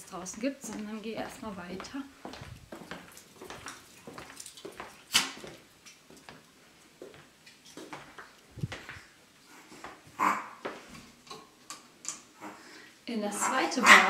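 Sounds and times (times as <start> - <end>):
soft footsteps: 0.0 - 11.1.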